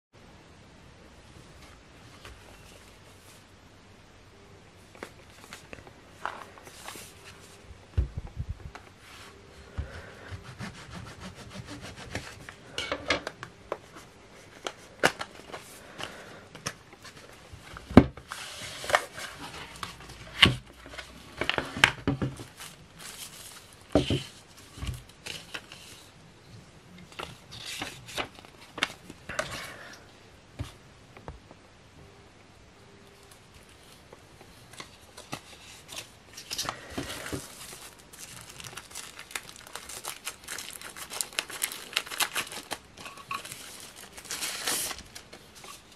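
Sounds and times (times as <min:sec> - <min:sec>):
cardboard rubbing and scraping: 0:10.2 - 0:12.6.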